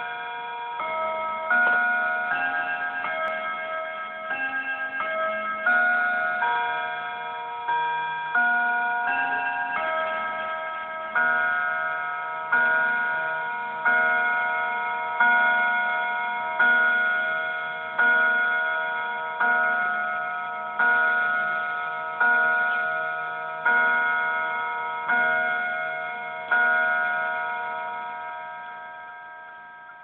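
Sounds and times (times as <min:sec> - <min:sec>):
mantel clock chiming: 0:00.0 - 0:30.0.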